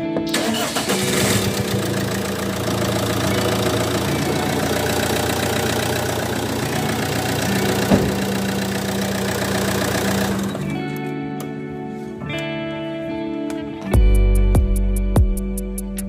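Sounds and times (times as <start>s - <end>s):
diesel engine idling: 0.6s - 10.7s.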